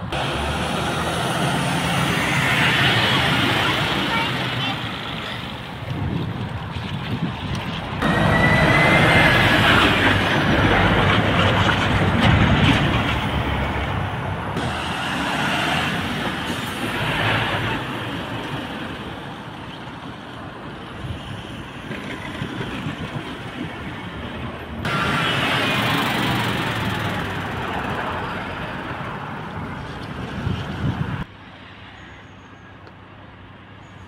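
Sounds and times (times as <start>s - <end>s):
tyres rumbling over crossing: 0.0s - 31.3s
heavy lorries passing: 0.0s - 33.8s
short high squeal: 8.0s - 10.0s.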